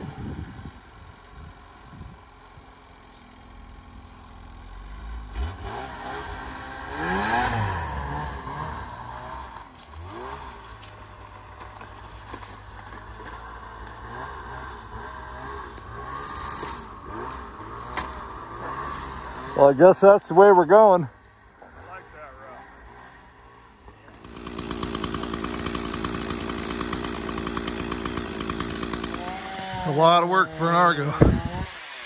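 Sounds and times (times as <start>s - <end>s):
snowmobile engine revving: 0.0s - 11.8s, 12.8s - 32.0s.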